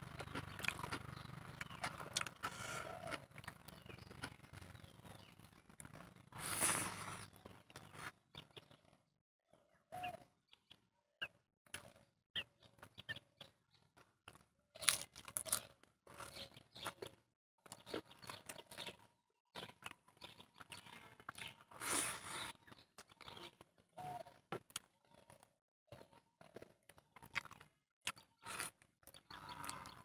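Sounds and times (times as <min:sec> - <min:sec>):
crunching of crisp food: 0:00.0 - 0:08.5, 0:13.9 - 0:30.0
chewing and mouth smacking: 0:00.1 - 0:08.0, 0:26.4 - 0:30.0.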